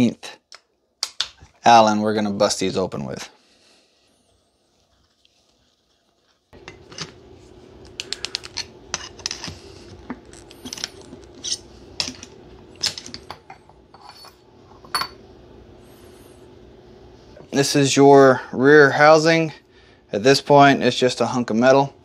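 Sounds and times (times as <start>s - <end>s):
faint steady hum: 0.0s - 22.0s
tools clinking on bench: 12.8s - 15.2s.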